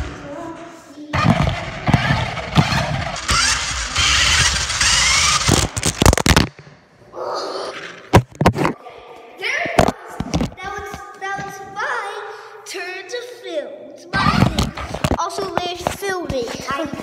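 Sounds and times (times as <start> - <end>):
toy car rattling and clattering: 1.2 - 6.4.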